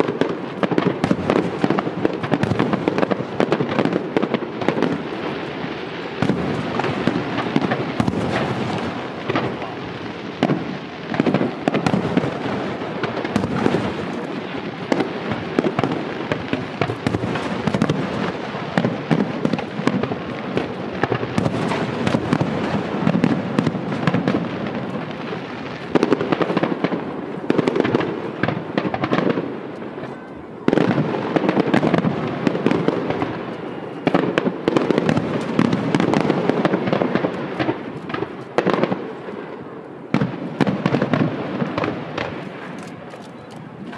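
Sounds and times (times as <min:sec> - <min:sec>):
fireworks bangs and crackles: 0:00.0 - 0:43.9.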